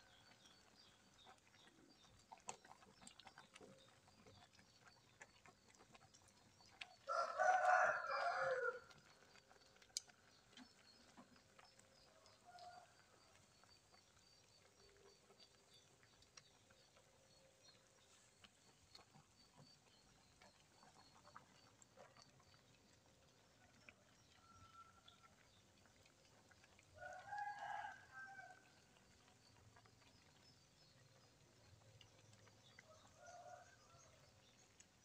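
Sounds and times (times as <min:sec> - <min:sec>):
pot boiling and bubbling: 0:00.0 - 0:35.0
rooster crowing: 0:07.1 - 0:08.9, 0:27.0 - 0:28.6.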